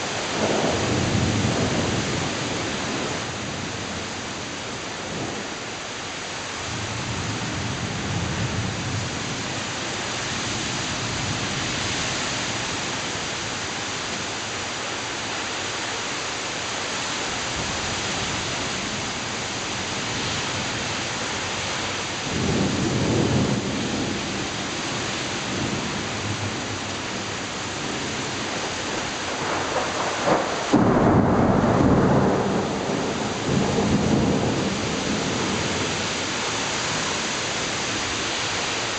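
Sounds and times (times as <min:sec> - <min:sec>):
heavy rain pouring: 0:00.0 - 0:38.9
thunder rumbling: 0:22.2 - 0:24.6, 0:27.8 - 0:36.2.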